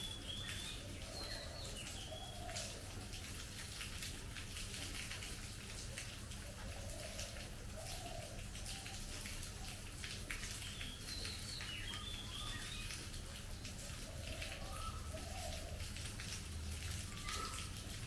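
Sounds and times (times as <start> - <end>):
rain falling on foliage: 0.0 - 18.0
bird chirping: 10.6 - 13.0.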